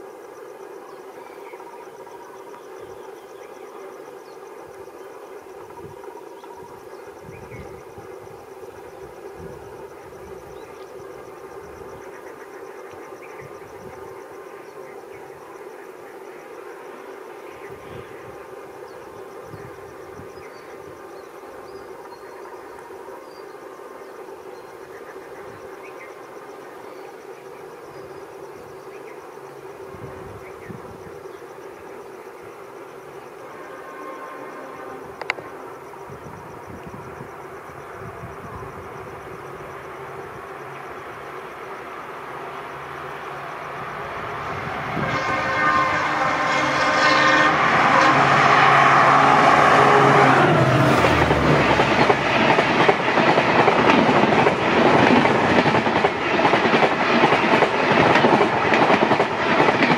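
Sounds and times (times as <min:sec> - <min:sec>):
diesel locomotive drone: 0:00.0 - 0:59.9
insect chirping: 0:00.0 - 0:59.9.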